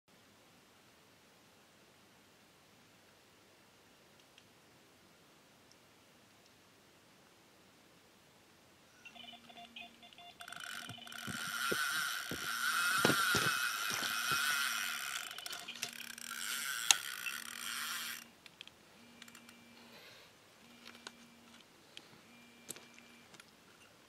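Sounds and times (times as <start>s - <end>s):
fishing reel drag screaming: 10.5s - 18.3s.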